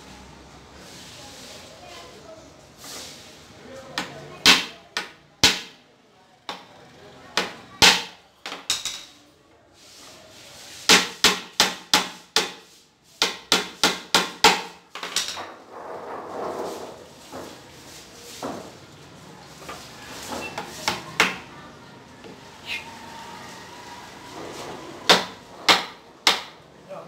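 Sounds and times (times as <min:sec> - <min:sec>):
hammer tapping on wood: 0:10.9 - 0:12.6, 0:25.1 - 0:26.6.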